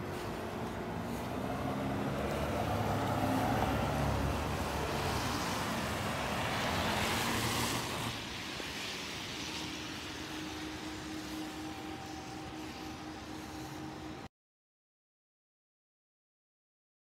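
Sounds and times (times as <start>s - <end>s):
tyre hiss on wet road: 0.0s - 14.3s
vehicle engine hum: 0.0s - 14.3s.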